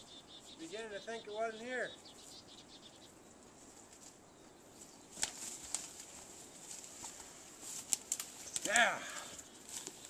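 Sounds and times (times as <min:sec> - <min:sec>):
brush rustling: 0:00.0 - 0:10.0
footsteps in undergrowth: 0:03.3 - 0:10.0
twigs cracking: 0:03.4 - 0:10.0.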